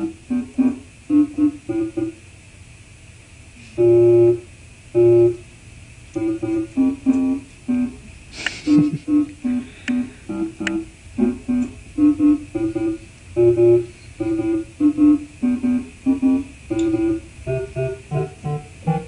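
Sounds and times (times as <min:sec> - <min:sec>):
electronic keyboard notes: 0:00.0 - 0:02.2, 0:06.2 - 0:08.0, 0:09.1 - 0:19.0.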